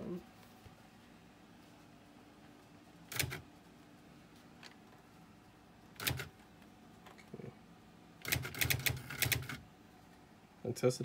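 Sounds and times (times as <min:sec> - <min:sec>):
electric typewriter clattering: 0:03.1 - 0:03.4, 0:06.0 - 0:06.3, 0:08.2 - 0:09.6.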